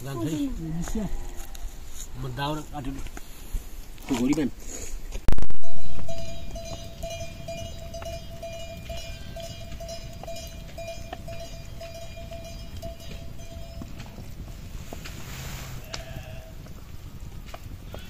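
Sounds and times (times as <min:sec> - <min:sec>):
livestock bell ringing: 0:05.6 - 0:14.4.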